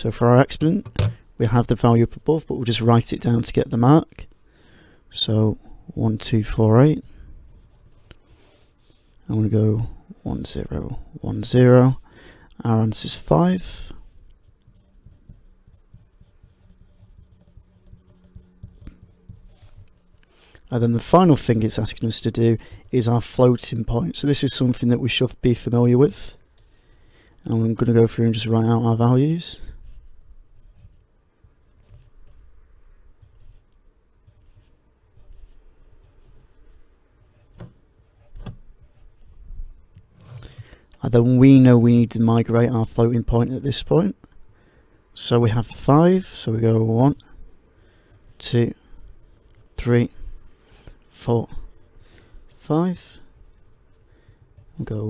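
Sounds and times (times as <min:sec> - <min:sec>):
pencil knocks: 0:00.8 - 0:01.2
pencil scratching on paper: 0:07.5 - 0:09.2, 0:12.9 - 0:24.8, 0:29.7 - 0:40.5, 0:45.5 - 0:55.0.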